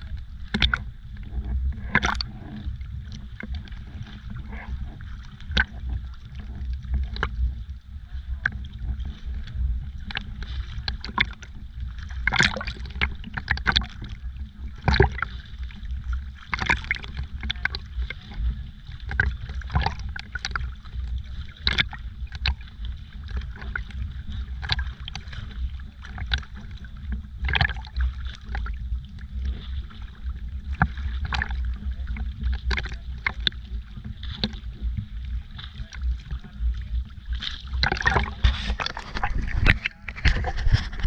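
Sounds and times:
sea water sloshing and slapping: 0.0 - 41.0
steady low rumble: 0.0 - 41.0
sharp water splashes: 1.9 - 2.3, 10.0 - 28.8, 29.4 - 41.0.

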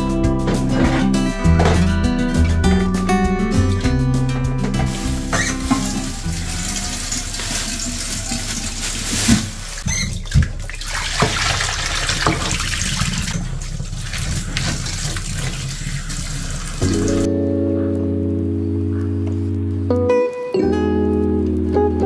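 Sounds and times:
colander knocking: 4.6 - 9.6
tap running into metal sink: 4.9 - 13.4.

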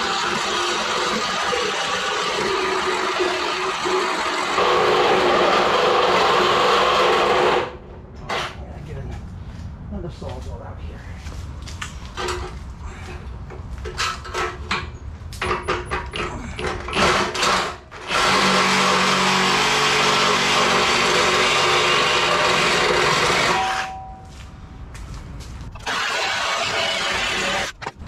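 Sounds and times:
reciprocating saw cutting steel: 0.0 - 8.6, 17.1 - 24.0, 25.8 - 27.8.

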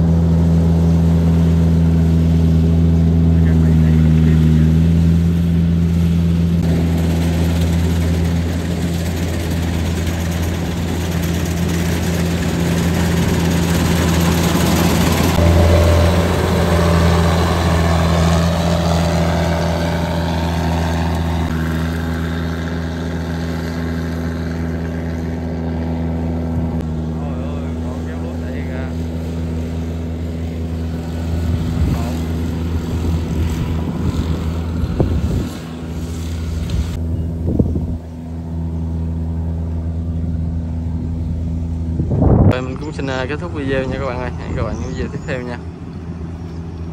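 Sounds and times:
diesel engine drone: 0.0 - 46.9
threshing machinery rushing: 3.6 - 38.0.

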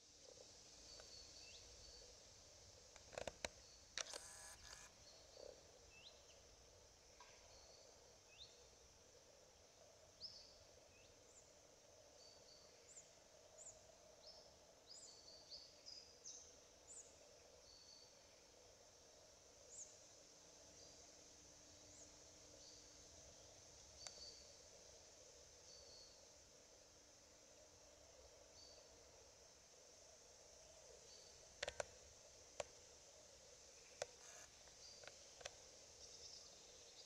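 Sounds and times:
brief rustle: 3.0 - 4.9
sharp clicks: 3.0 - 4.9, 31.6 - 31.9.

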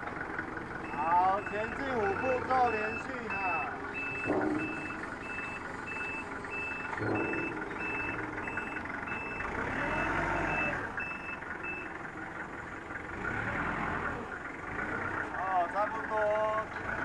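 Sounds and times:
forklift engine running: 0.0 - 17.0
reversing alarm beeping: 0.8 - 11.9.

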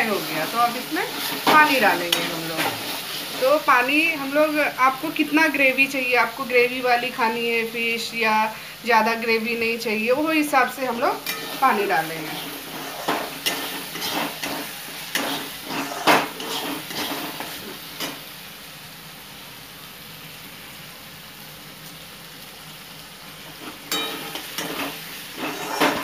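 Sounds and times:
paste sizzling in hot oil: 0.0 - 26.0
spatula scraping a pan: 0.2 - 3.7, 11.1 - 18.2, 23.5 - 26.0.

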